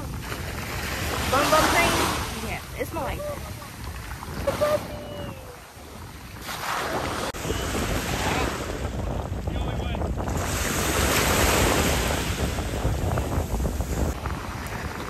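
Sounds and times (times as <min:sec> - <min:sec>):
sea water washing: 0:00.0 - 0:09.6
wind buffeting microphone: 0:00.0 - 0:15.0.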